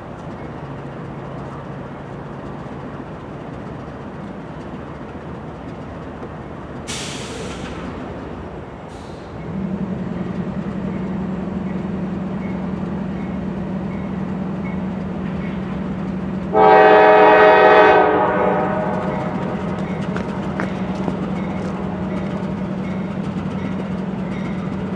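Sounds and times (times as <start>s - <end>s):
diesel locomotives droning: 0.0s - 24.9s
locomotive air horn: 16.5s - 19.8s.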